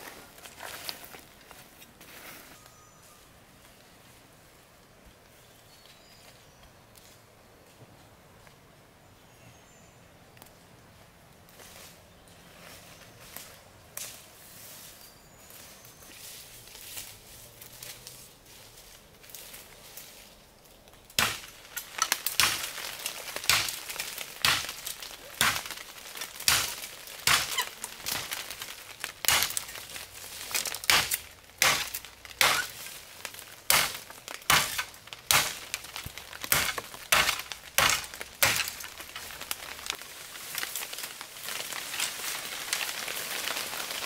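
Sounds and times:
sharp chopping blows: 21.2 - 21.5, 26.4 - 27.7, 30.8 - 32.8, 33.7 - 35.7, 36.5 - 38.8.

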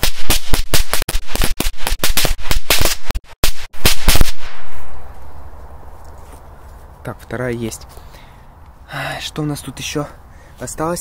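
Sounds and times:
firecracker string bangs: 0.0 - 5.0.

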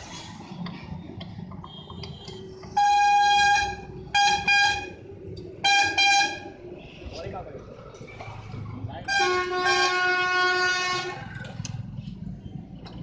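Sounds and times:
vehicle horn honking: 1.7 - 5.0, 5.6 - 6.5, 9.1 - 11.2.

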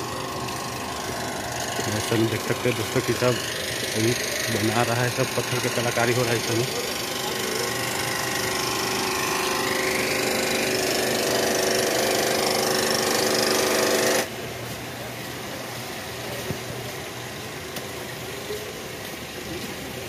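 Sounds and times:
power tool whining on stone: 0.0 - 14.3.

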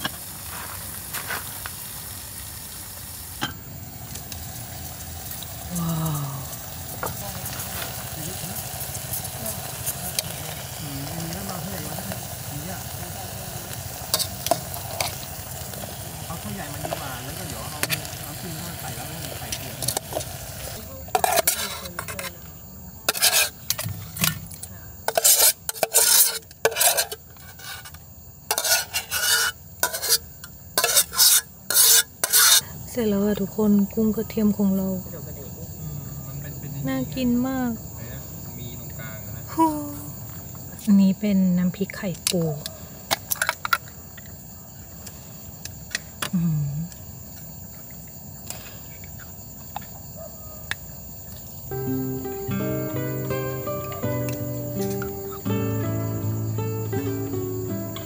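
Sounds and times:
crickets chirring: 0.0 - 58.0
metal spoon scraping metal pot: 21.1 - 22.4, 23.1 - 24.3, 25.1 - 32.6.

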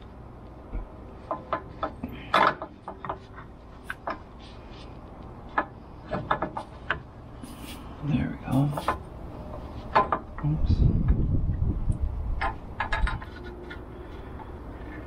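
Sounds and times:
metal parts clinking and knocking: 12.4 - 13.8.

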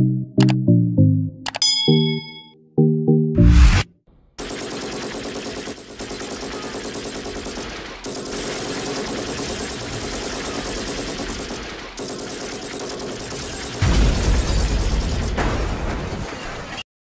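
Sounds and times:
automatic gunfire: 4.4 - 14.0.

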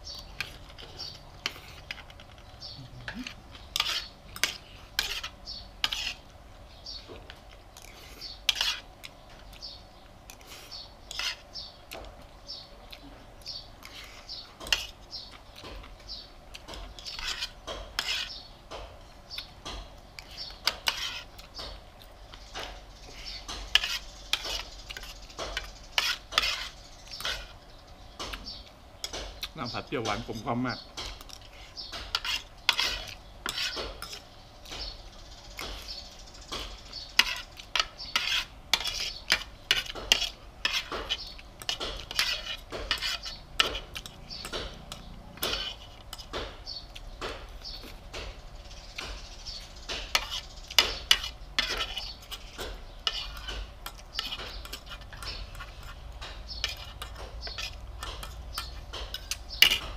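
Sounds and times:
cutlery scraping a ceramic plate: 3.1 - 6.3, 7.3 - 8.9, 11.1 - 11.5, 13.8 - 15.0, 16.6 - 18.4, 20.2 - 21.8, 22.4 - 27.6, 31.0 - 35.0, 36.6 - 46.5, 49.0 - 59.9.

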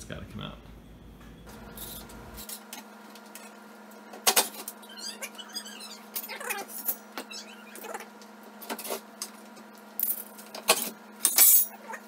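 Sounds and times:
high chirping squeaks: 4.8 - 8.1.

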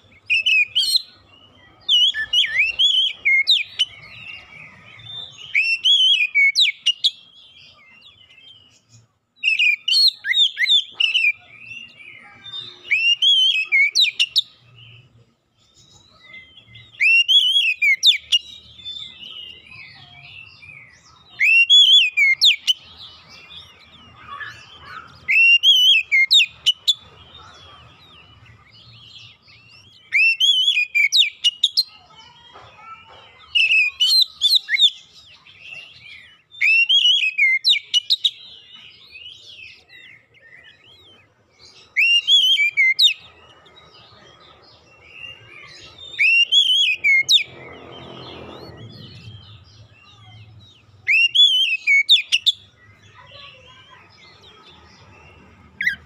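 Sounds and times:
bird singing whistled phrases: 0.2 - 7.2, 9.4 - 14.6, 16.2 - 22.8, 24.1 - 27.0, 29.8 - 31.9, 33.6 - 35.2, 36.4 - 38.4, 41.8 - 43.2, 45.2 - 48.1, 51.0 - 52.8.

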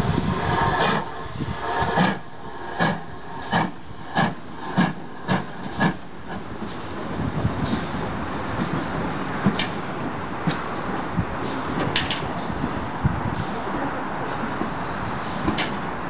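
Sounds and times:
steam hissing: 0.0 - 16.0.

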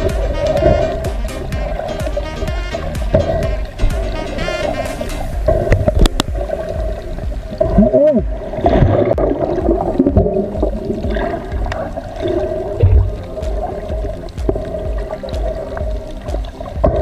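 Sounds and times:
water gurgling underwater: 0.0 - 17.0.

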